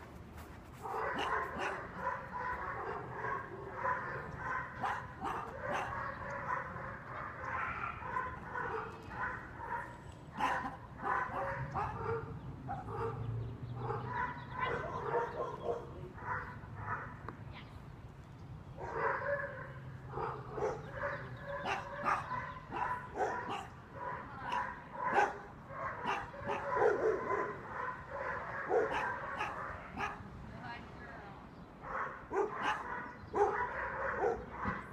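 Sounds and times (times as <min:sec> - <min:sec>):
puppy barking and yipping: 0:00.8 - 0:03.0, 0:03.8 - 0:06.6, 0:07.5 - 0:12.2, 0:20.6 - 0:30.2, 0:31.9 - 0:34.8.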